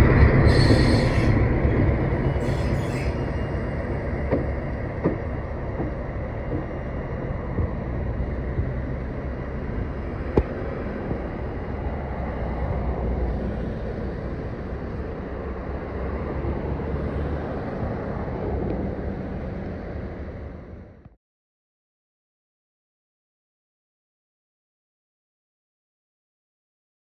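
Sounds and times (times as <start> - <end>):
freight train rumbling: 0.0 - 21.1
faint low engine drone: 0.0 - 21.2.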